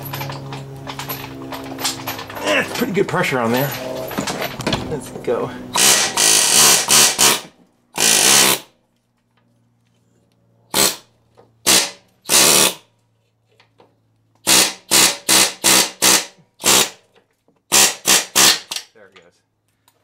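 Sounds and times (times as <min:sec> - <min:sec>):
pneumatic air hammer bursts: 0:05.7 - 0:08.7, 0:10.7 - 0:12.9, 0:14.4 - 0:17.0, 0:17.7 - 0:18.9.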